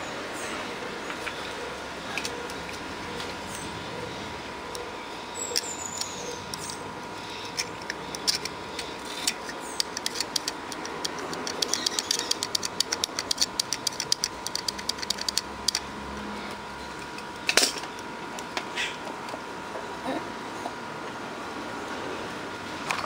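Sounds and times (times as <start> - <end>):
small sharp clicks and scratches: 5.5 - 15.9.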